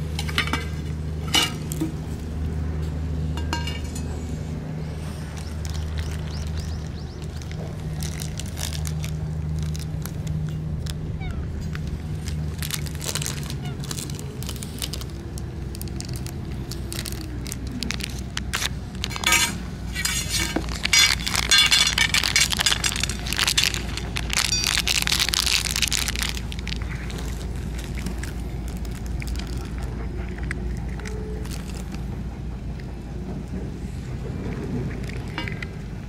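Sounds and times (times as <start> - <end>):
cats chewing: 5.0 - 19.2, 20.5 - 36.0
plastic pouch crinkling: 5.3 - 11.1, 11.7 - 19.4, 20.3 - 32.0.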